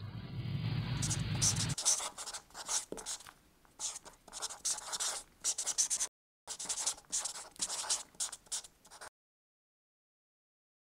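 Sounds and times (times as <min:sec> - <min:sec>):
pen scribbling on paper: 0:01.0 - 0:09.1.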